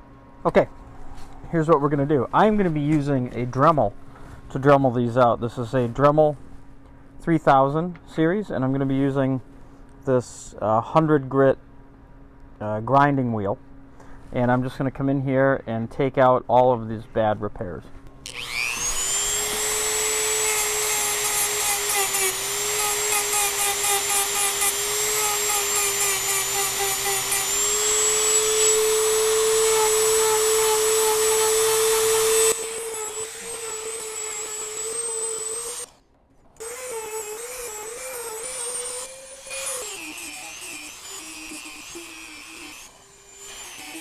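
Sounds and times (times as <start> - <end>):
rotary tool sanding whine: 18.2 - 36.0, 36.6 - 44.0.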